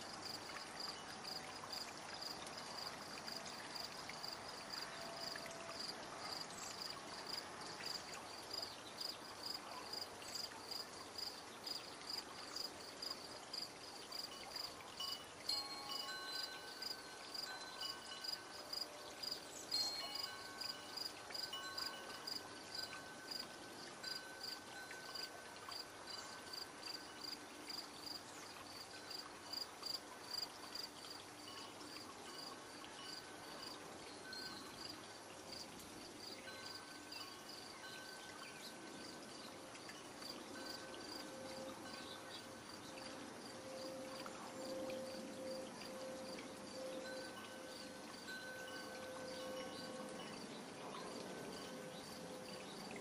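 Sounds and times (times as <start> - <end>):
cricket chirping: 0.0 - 53.0
wind chimes ringing: 14.2 - 29.6, 31.3 - 53.0.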